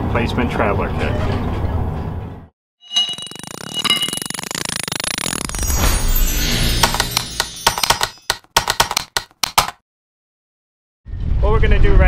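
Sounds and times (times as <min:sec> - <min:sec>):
fast ticking rhythm: 0:03.2 - 0:09.8.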